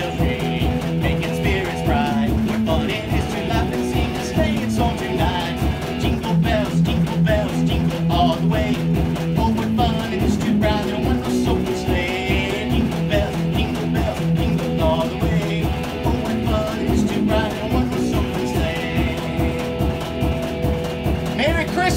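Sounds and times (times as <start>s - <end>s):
electric guitar riffs: 0.0s - 21.9s.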